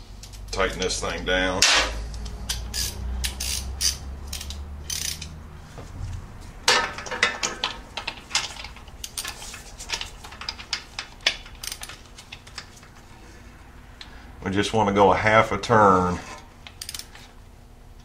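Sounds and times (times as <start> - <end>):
socket ratchet clicking: 2.2 - 5.4, 16.7 - 17.1.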